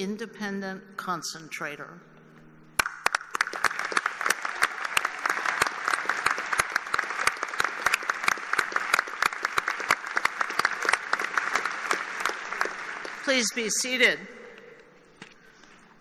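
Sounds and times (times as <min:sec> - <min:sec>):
crowd applauding: 0:02.8 - 0:13.8.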